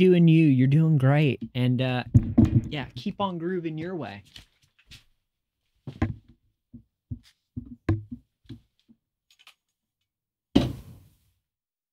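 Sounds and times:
soft knocks and thumps: 1.4 - 3.2, 5.8 - 8.8.

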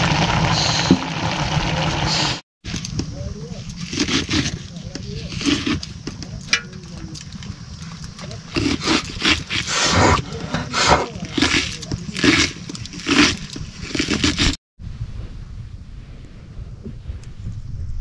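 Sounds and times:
crunching of cabbage being sliced: 3.7 - 6.2, 8.0 - 14.6
steady low rumble: 14.8 - 18.0.

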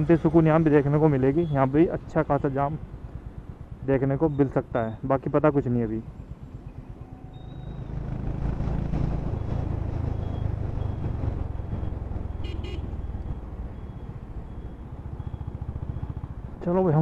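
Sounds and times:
motorcycle engine running: 6.1 - 17.0
vehicle horn: 12.4 - 13.0.

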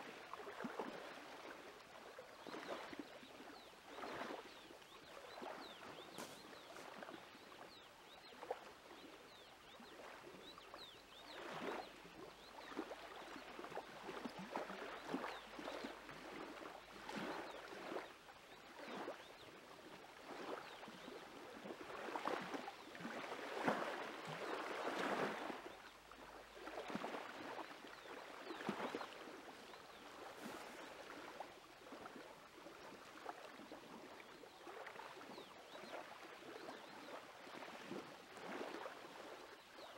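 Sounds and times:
small waves lapping at shore: 0.0 - 39.9.

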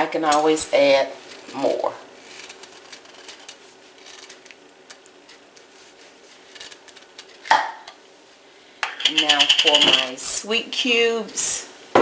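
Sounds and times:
kitchen utensils clicking: 8.8 - 10.2.

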